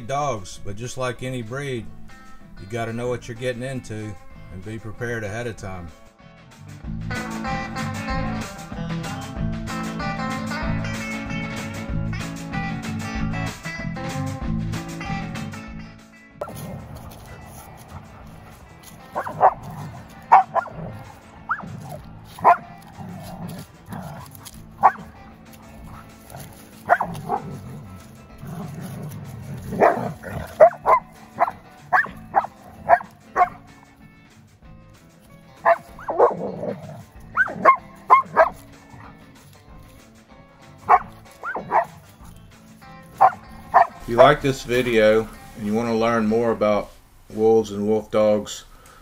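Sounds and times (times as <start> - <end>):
background music: 0.0 - 49.0
dogs barking and yipping: 16.4 - 34.0, 35.5 - 39.9, 40.6 - 44.1.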